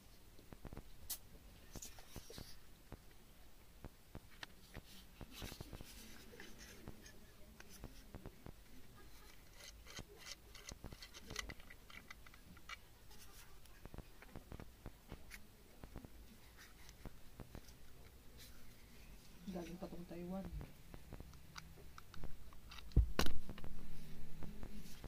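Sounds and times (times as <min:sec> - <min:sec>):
plastic parts clicking: 0:09.2 - 0:12.8, 0:21.3 - 0:23.7.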